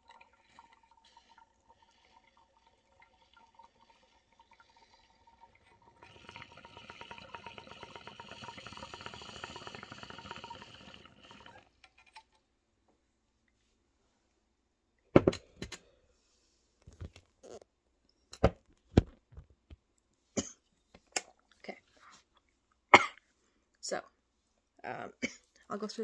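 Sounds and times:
bong water bubbling: 0.0s - 11.6s.

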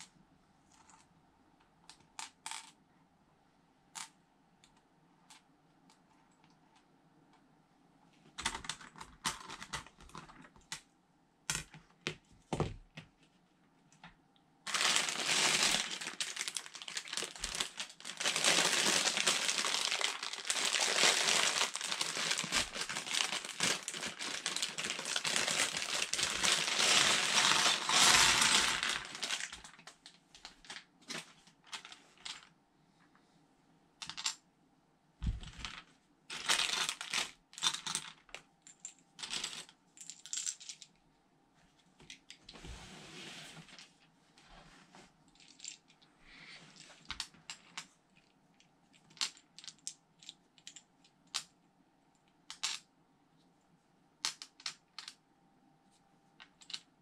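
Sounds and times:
plastic bags crinkling: 14.7s - 32.5s, 35.4s - 38.1s
plastic pieces clicking on table: 52.5s - 52.8s, 54.2s - 55.2s, 56.4s - 56.9s.

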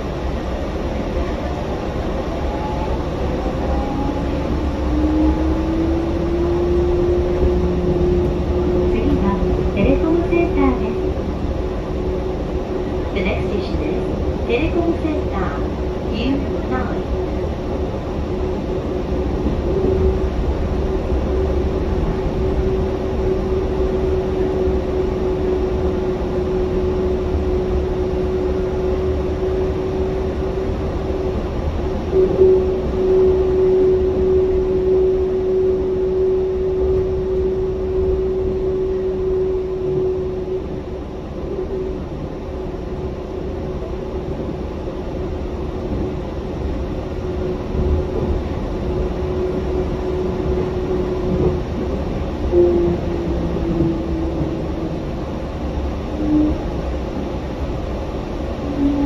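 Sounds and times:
train running gear rumble: 0.0s - 59.0s.

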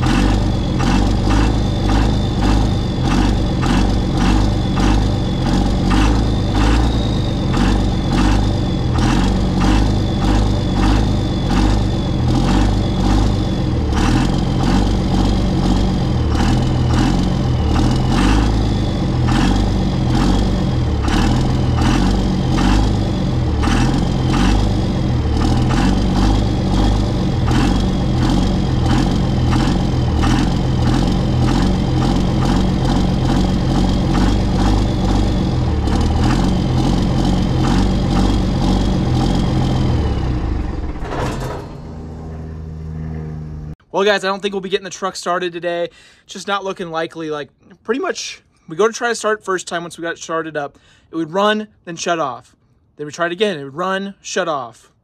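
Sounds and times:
diesel engine cranking: 0.0s - 43.9s
high starter whine: 0.0s - 44.6s.

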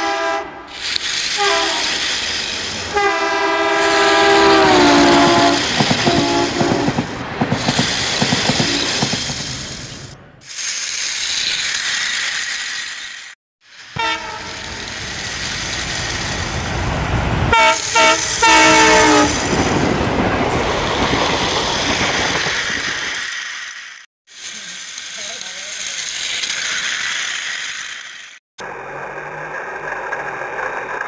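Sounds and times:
toy train horn tooting: 0.0s - 2.1s, 2.9s - 7.0s, 13.9s - 15.0s, 17.5s - 19.4s
toy train whirring rattle: 0.7s - 3.1s, 3.8s - 16.6s, 17.7s - 19.5s, 22.4s - 31.0s.

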